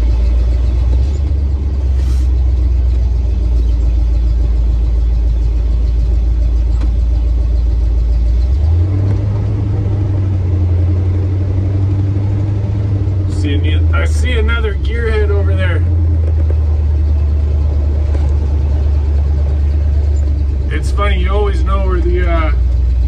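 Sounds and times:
truck engine and road rumble: 0.0 - 23.0.

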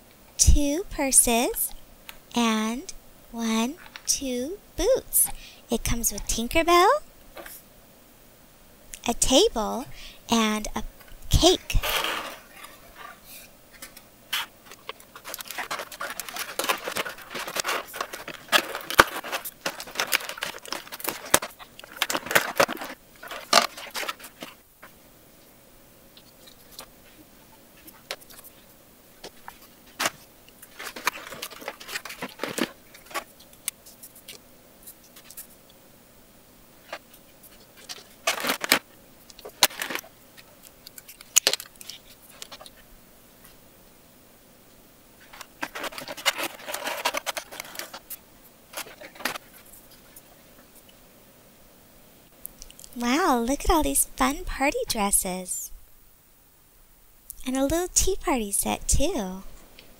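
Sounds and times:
plastic packaging crinkling: 13.7 - 24.6, 29.2 - 34.4, 36.8 - 40.1, 40.7 - 42.8, 45.2 - 50.2.

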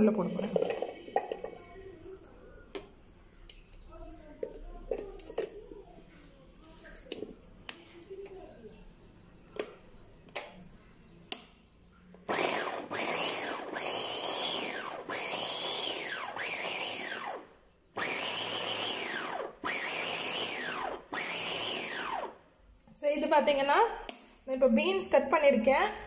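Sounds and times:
electric chopper motor whirring: 12.3 - 22.4.

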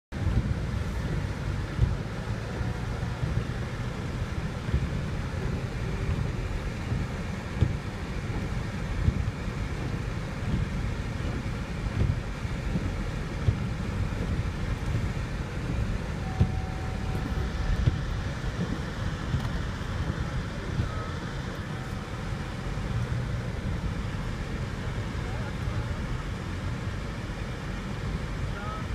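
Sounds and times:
car engine and tyres rumbling: 0.1 - 28.9.

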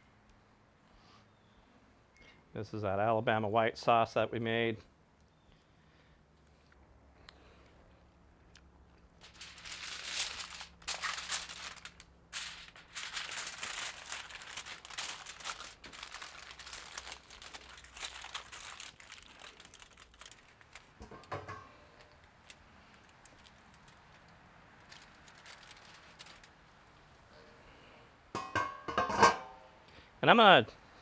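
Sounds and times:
aluminium foil crinkling: 9.1 - 27.2.

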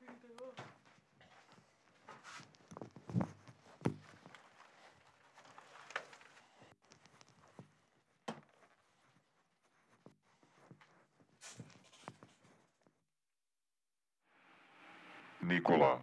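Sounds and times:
faint footsteps: 0.0 - 12.8.

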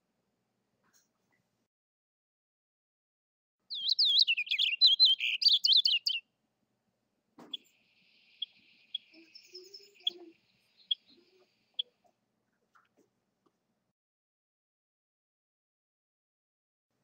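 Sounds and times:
faint short bird notes: 3.7 - 6.2
finch warbling song: 3.7 - 6.2, 7.5 - 11.9.

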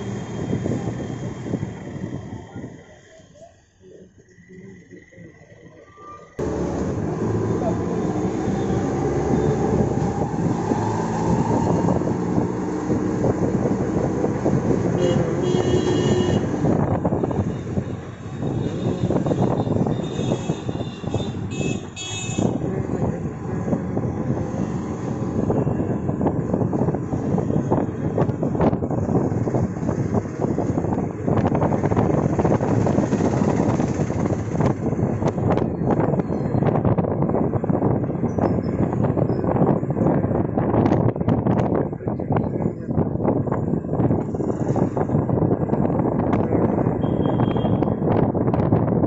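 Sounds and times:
wind buffeting microphone: 0.0 - 2.9, 6.4 - 49.0
vehicle engine rattling: 16.2 - 47.0.

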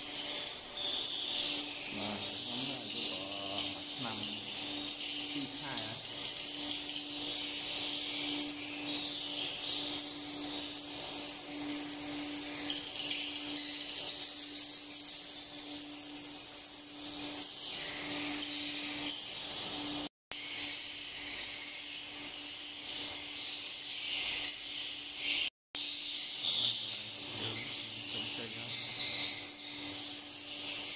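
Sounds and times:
swiftlets twittering: 0.0 - 20.0, 27.2 - 30.2
steady low hum: 1.2 - 20.1.

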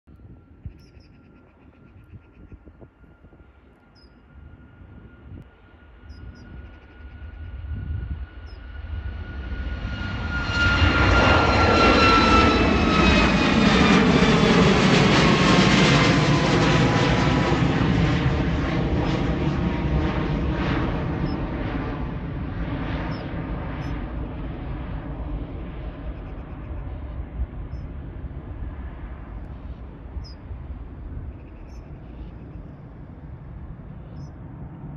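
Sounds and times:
high bird chirps: 0.6 - 2.6
jet engines roaring: 2.7 - 34.9.

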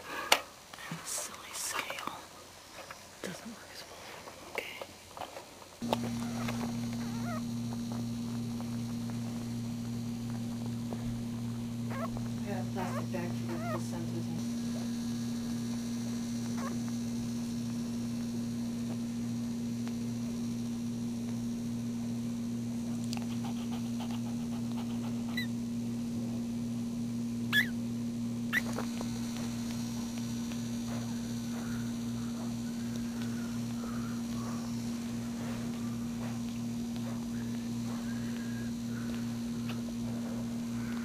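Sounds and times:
low electrical hum: 0.0 - 41.0
puppy squeaking: 6.2 - 7.4, 11.9 - 12.2, 12.9 - 13.8, 27.5 - 27.7.

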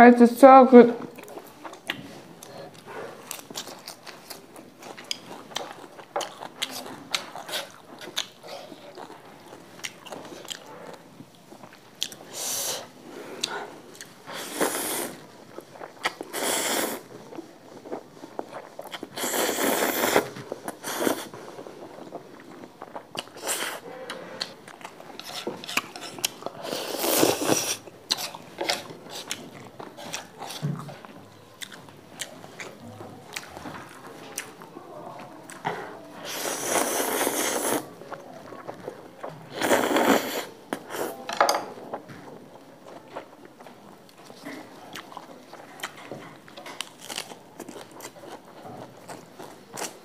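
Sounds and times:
wet chewing: 1.1 - 50.0
person slurping noodles: 14.2 - 15.3, 16.0 - 17.1, 18.9 - 21.3, 25.2 - 29.4, 36.2 - 37.9, 39.5 - 41.2.

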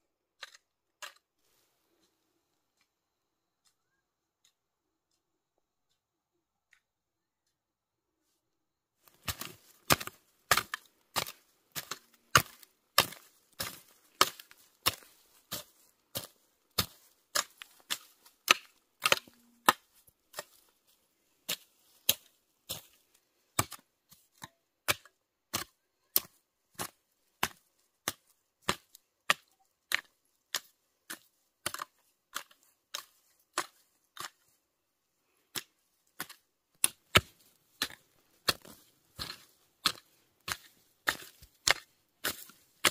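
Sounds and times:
hoe chopping into dry soil: 9.1 - 20.7, 21.5 - 34.6, 35.5 - 42.9.

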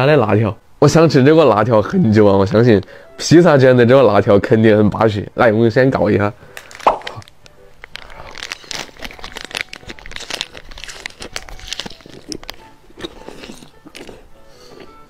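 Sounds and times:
plastic snack packet crinkling: 6.5 - 15.0
mouth-close chewing: 7.9 - 15.0.

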